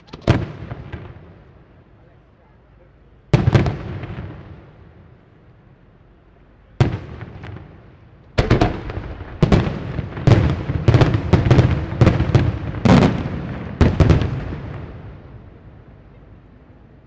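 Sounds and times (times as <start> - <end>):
firework shells bursting: 0.0 - 1.2.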